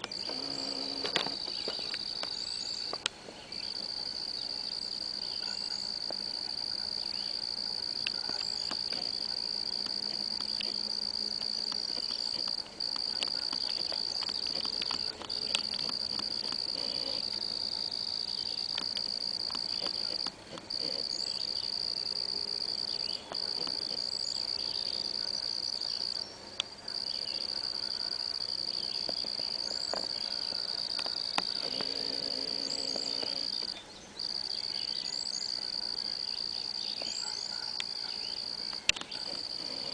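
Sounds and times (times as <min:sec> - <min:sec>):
faint bird chirps: 0:00.0 - 0:07.4, 0:22.8 - 0:39.9
high insect trill: 0:00.0 - 0:39.9.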